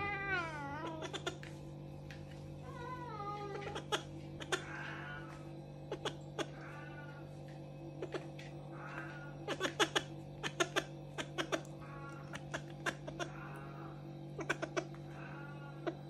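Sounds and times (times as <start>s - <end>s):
faint cat meows: 0.0s - 1.4s, 2.6s - 7.3s, 8.1s - 10.0s, 10.7s - 16.0s
low drone: 4.1s - 16.0s.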